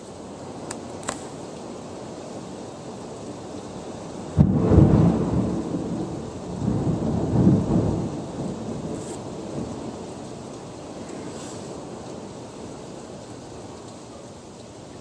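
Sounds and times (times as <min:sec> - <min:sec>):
steady hiss: 0:00.0 - 0:15.0
thunder crack and rumble: 0:04.3 - 0:12.7.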